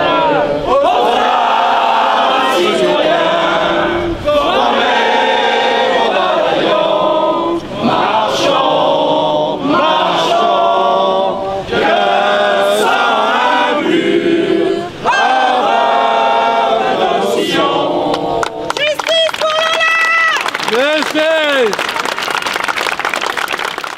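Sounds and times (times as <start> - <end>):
crowd singing together: 0.0 - 18.7.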